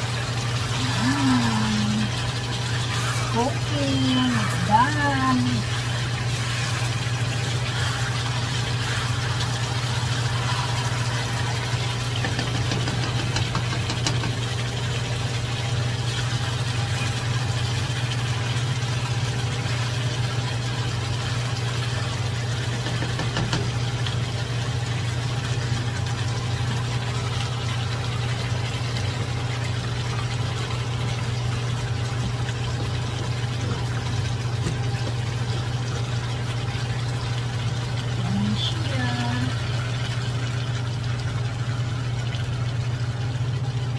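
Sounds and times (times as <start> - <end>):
food sizzling in a wok: 5.7 - 14.4.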